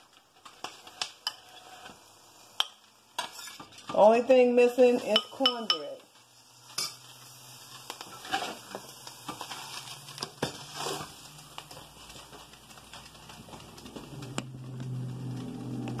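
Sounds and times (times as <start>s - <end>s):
low hum: 13.2s - 16.0s.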